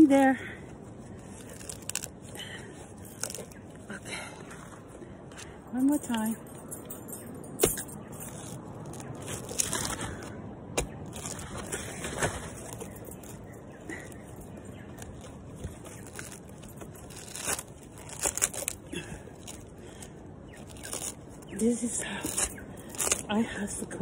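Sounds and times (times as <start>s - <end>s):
husk fibres scraping and tearing: 1.0s - 4.8s, 8.3s - 13.0s, 14.9s - 19.8s, 20.5s - 23.4s.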